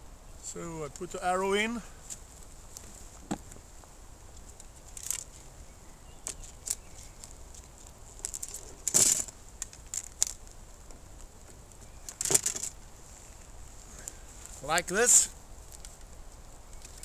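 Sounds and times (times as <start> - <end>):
arrows clattering: 8.2 - 10.4
arrows rattling in quiver: 8.4 - 10.4.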